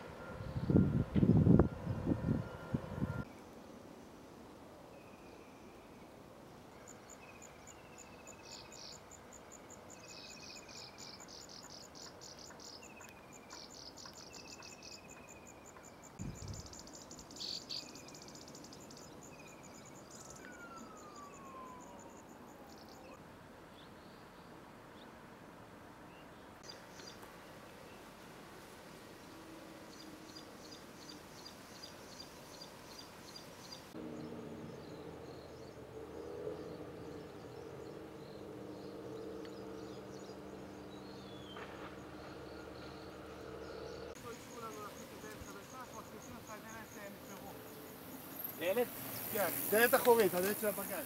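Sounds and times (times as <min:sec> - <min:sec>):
birdsong: 0:00.0 - 0:03.6, 0:04.9 - 0:25.2, 0:26.1 - 0:28.1, 0:29.2 - 0:51.0
insect calls: 0:06.7 - 0:23.2, 0:29.0 - 0:51.0
long falling whistle: 0:20.3 - 0:22.3.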